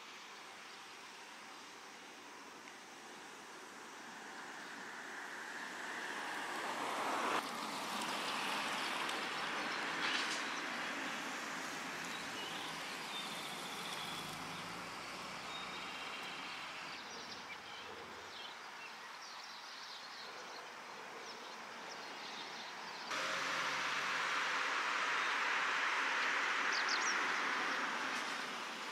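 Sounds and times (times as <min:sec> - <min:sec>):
steady broad hiss: 0:23.1 - 0:28.9.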